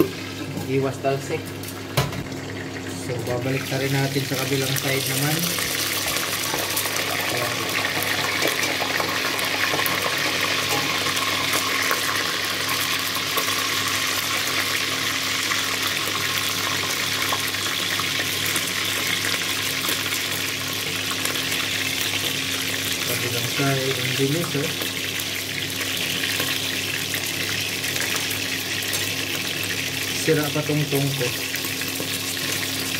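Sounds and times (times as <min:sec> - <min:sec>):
meat sizzling in hot oil: 0:00.0 - 0:32.9.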